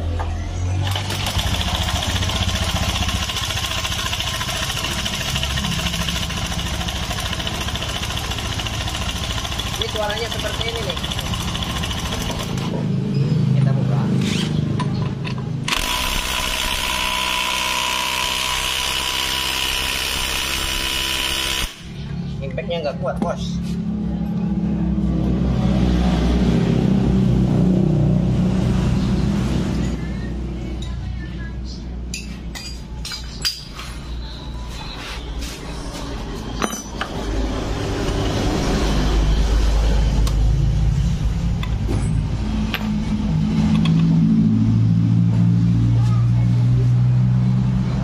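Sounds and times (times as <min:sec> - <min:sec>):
impact wrench hammering: 0:14.8 - 0:21.9, 0:36.6 - 0:37.2, 0:42.7 - 0:43.0
metal tools clinking: 0:32.1 - 0:33.9, 0:36.5 - 0:37.3.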